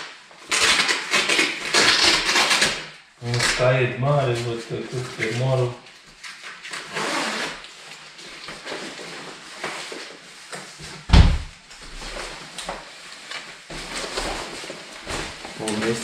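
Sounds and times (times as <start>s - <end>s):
loud thump: 11.1s - 11.6s.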